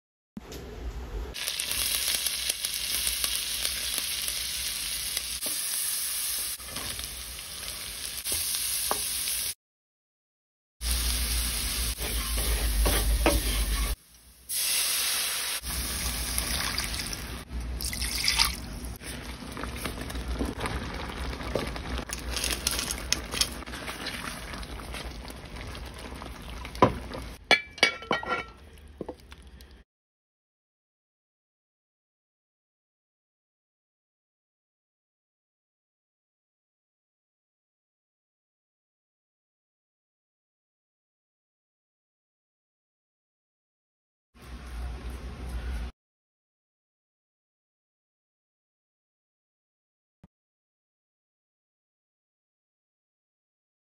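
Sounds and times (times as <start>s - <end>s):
vegetables sizzling in a pan: 1.3s - 9.6s, 10.8s - 17.5s
spoon clinking glass dish: 27.5s - 28.6s.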